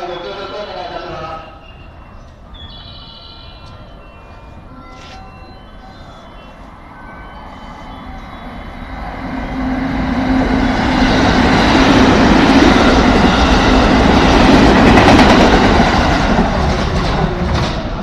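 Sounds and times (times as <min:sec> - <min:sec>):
electric train passing at speed: 0:00.0 - 0:18.0.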